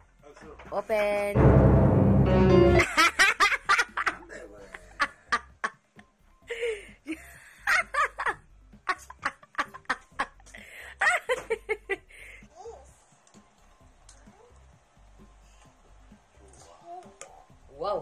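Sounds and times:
chuckling and giggling: 2.8 - 12.4.

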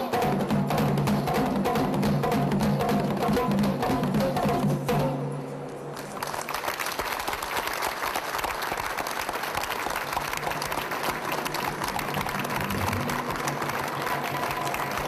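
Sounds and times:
audience applauding: 5.9 - 15.0.

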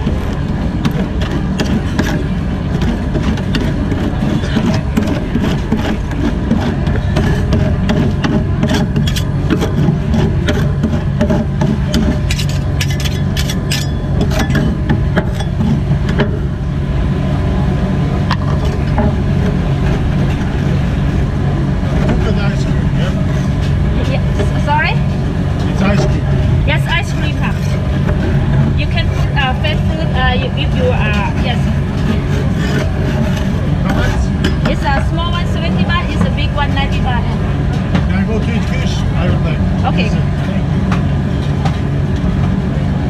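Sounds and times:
steady low hum: 0.0 - 43.0
metal spatulas scraping metal plate: 2.8 - 15.8, 32.0 - 34.3.

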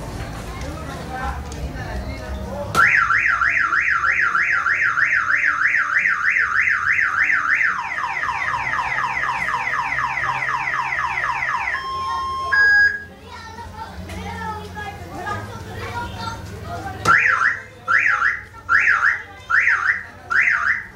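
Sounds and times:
car alarm siren wailing: 2.8 - 13.1, 17.1 - 20.9
short steady beeps: 10.9 - 13.1.

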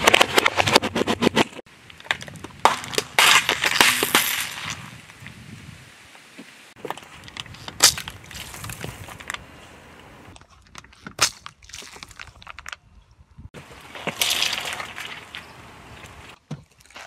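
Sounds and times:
tyre crunching on gravel: 13.6 - 16.4.

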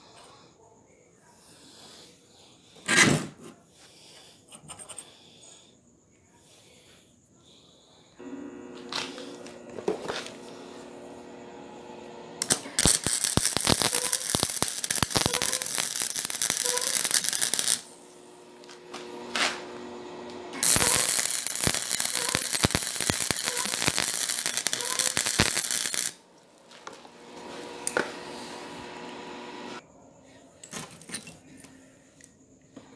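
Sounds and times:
electric arc welding crackling: 8.2 - 26.2, 26.8 - 29.8.

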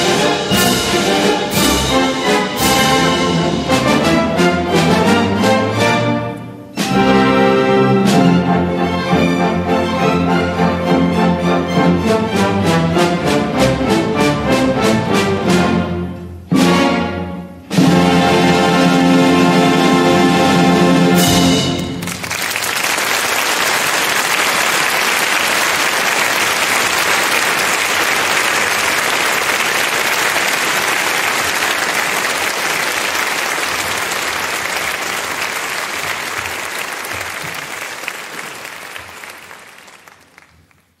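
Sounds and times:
audience applauding: 21.8 - 41.0.

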